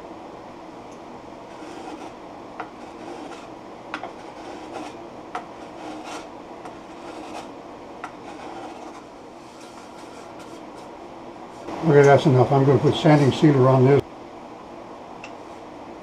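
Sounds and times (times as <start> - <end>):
hand plane scraping wood: 1.5 - 10.9.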